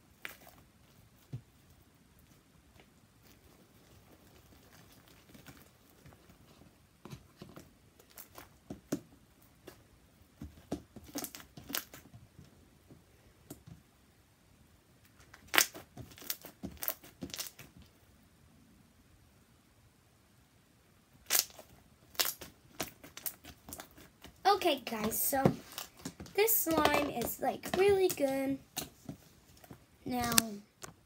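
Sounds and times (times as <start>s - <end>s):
sticky slime popping and crackling: 10.4s - 12.1s, 15.3s - 17.8s, 21.2s - 29.0s.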